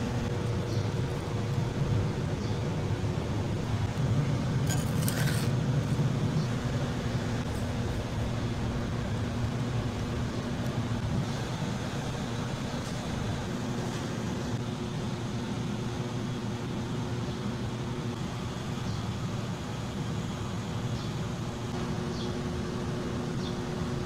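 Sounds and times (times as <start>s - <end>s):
low mechanical hum with hiss: 0.0s - 24.0s.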